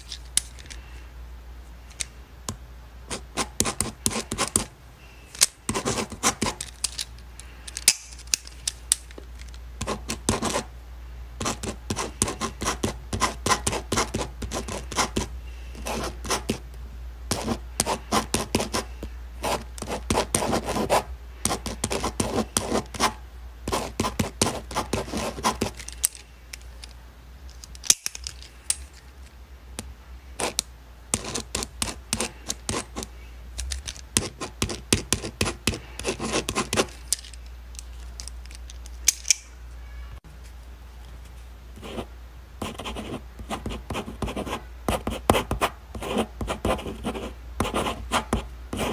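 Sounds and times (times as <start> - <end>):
ballpoint pen writing on paper: 3.1 - 4.7, 5.7 - 6.6, 9.8 - 10.7, 11.4 - 16.6, 17.3 - 25.8, 31.2 - 33.1, 34.2 - 36.9, 42.6 - 48.9.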